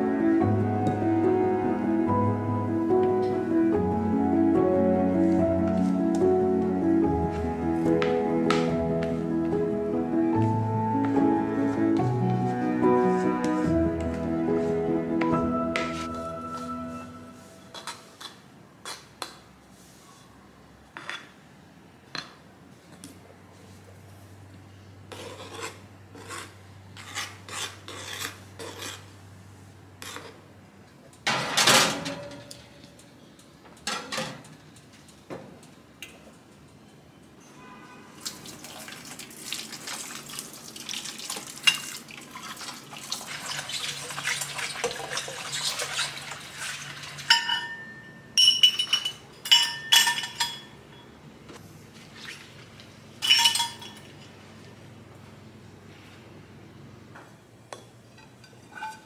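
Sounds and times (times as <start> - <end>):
metallic clinks of utensils: 47.3 - 50.8, 53.2 - 54.2.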